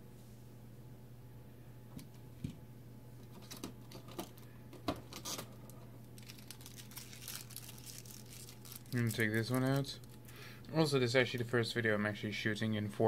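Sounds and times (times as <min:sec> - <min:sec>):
packaging rustle: 0:06.1 - 0:10.5.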